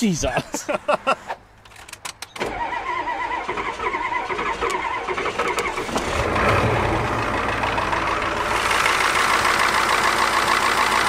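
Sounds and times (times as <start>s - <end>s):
engine starter cranking: 1.7s - 10.9s
diesel engine running: 3.6s - 11.0s.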